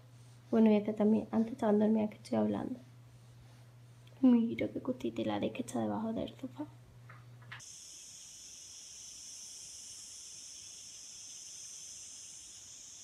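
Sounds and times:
insects chorus drone: 7.6s - 13.0s.

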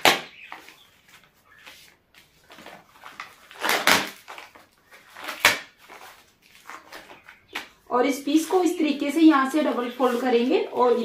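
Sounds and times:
fabric rustling: 8.3s - 11.0s.

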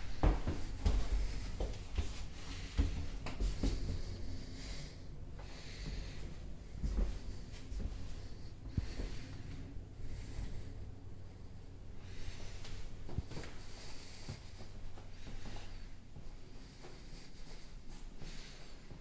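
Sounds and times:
footsteps on wooden floor: 0.0s - 4.4s, 5.4s - 10.2s
low room hum: 0.0s - 19.0s.

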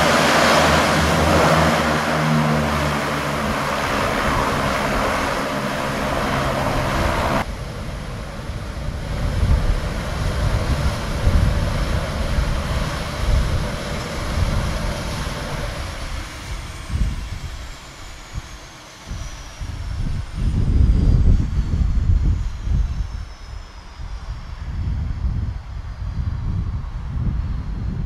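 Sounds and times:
engine whine falling in pitch: 0.0s - 28.0s
turboprop engines roaring: 0.0s - 28.0s.

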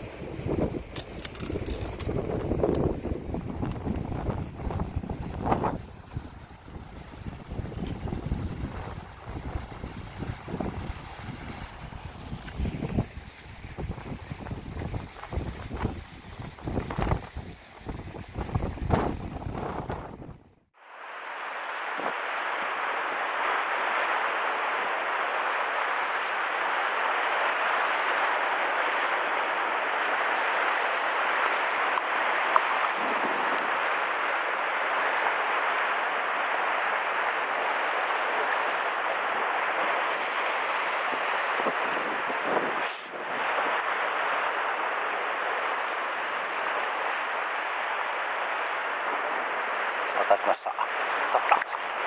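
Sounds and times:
sea surf on rocky shore: 0.0s - 20.2s, 20.8s - 52.0s
wind rumble on microphone: 0.0s - 20.6s, 41.0s - 43.8s.

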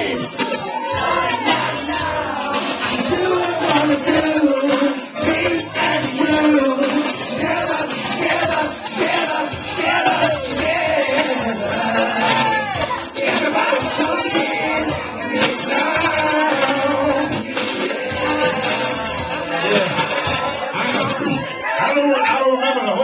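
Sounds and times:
man singing into a microphone: 0.0s - 23.0s
voices singing along: 0.0s - 23.0s.

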